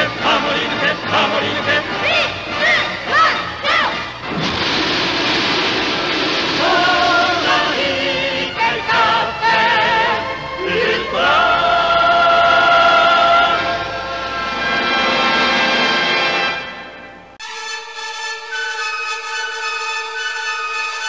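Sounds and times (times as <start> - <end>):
voices singing with vibrato: 0.0 - 4.2, 6.4 - 14.3
orchestral theme music: 0.0 - 21.0.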